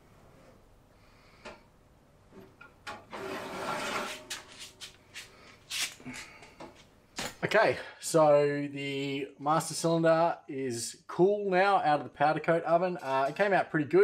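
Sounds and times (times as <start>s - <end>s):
rubbing or scraping: 3.1s - 6.2s.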